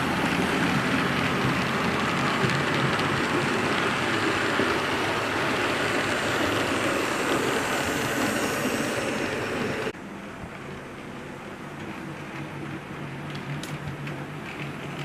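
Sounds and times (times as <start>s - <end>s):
model train rumbling past: 0.0s - 15.0s.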